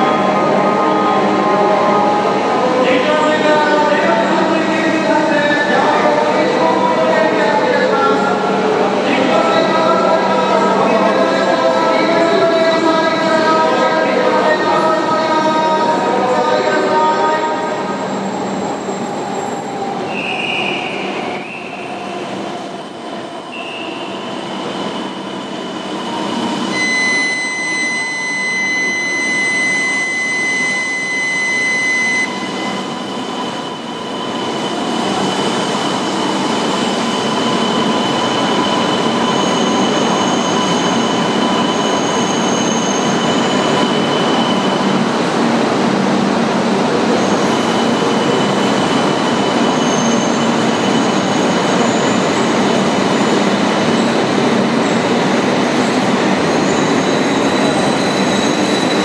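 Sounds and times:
high-pitched electronic warning tone: 0:26.7 - 0:34.6.

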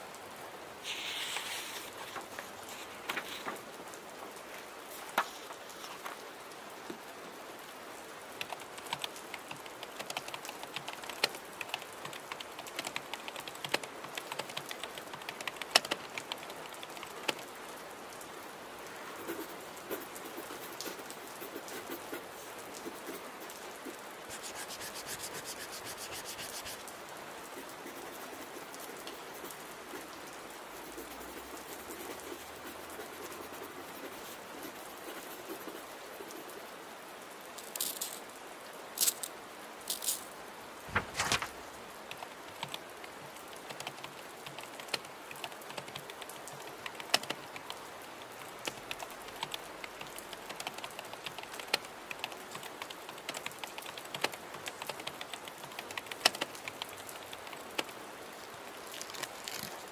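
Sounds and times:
steady rain: 0:00.0 - 0:59.9
paper rustling: 0:00.8 - 0:03.8, 0:04.9 - 0:06.2, 0:24.3 - 0:26.9, 0:40.8 - 0:41.8, 0:58.8 - 0:59.9
keyboard typing clicks: 0:08.4 - 0:17.4, 0:48.7 - 0:57.9
pen scratching on paper: 0:24.3 - 0:26.9, 0:30.8 - 0:36.3.

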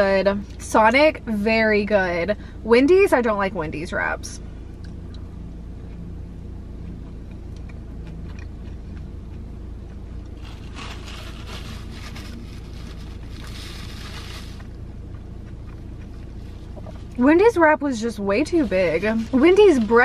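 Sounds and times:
car cabin hum: 0:00.0 - 0:20.0
paper wrapper crumpling: 0:10.4 - 0:14.7.

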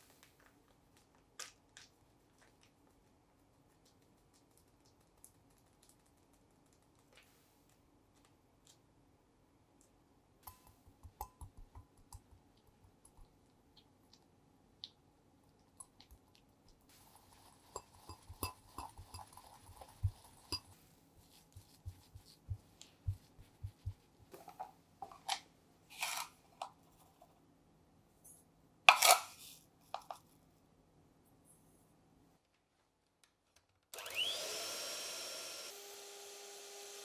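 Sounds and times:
whisk clicking against glass bowl: 0:10.5 - 0:12.4, 0:17.7 - 0:20.7.

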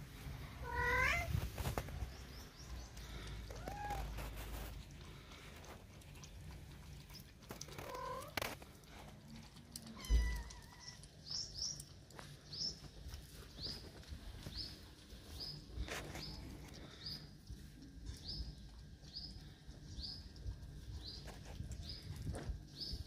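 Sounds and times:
kittens mewing: 0:00.6 - 0:01.4
bird chirping: 0:10.0 - 0:12.9.

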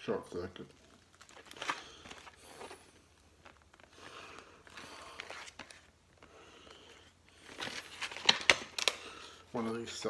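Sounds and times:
plastic tape case handled: 0:07.4 - 0:09.0.

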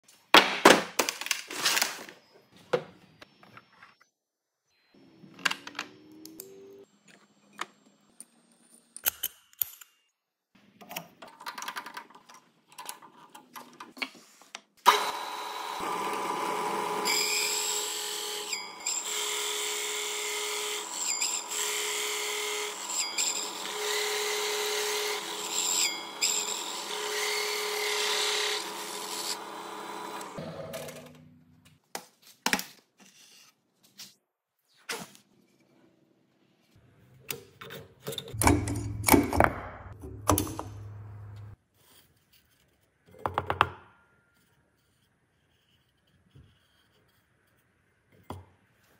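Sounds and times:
drill press cutting wood: 0:14.9 - 0:30.6.

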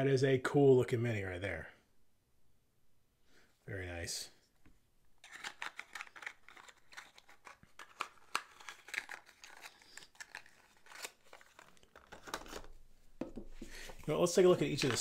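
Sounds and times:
packaging crinkling and rustling: 0:05.2 - 0:12.8, 0:13.8 - 0:15.0.

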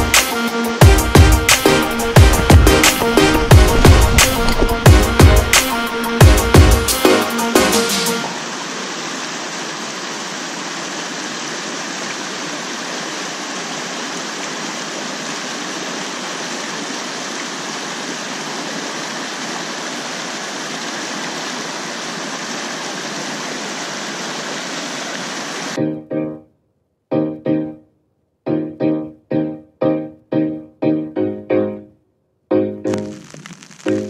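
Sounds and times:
creek rushing over rocks: 0:01.1 - 0:25.8.

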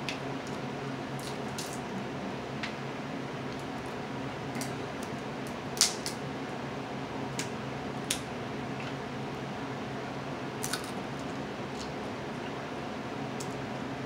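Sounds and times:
steady low hum: 0:00.0 - 0:14.0
crab shells snapping: 0:04.6 - 0:06.2, 0:10.6 - 0:11.0.

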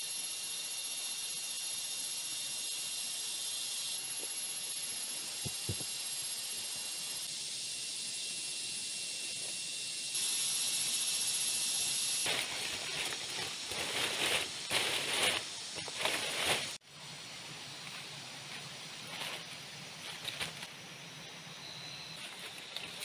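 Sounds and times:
steady outdoor hiss: 0:00.0 - 0:23.0
rustling and crackling: 0:12.2 - 0:16.8, 0:18.5 - 0:20.7.

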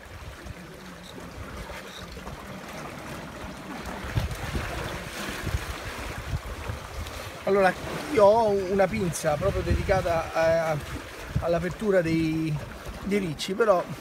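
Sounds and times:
seawater splashing at rocky shore: 0:00.0 - 0:14.0
wind buffeting microphone: 0:03.8 - 0:14.0.

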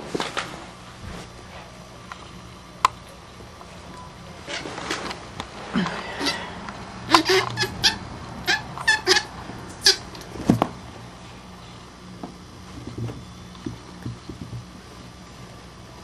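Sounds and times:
baby minks squeaking: 0:07.1 - 0:10.1.

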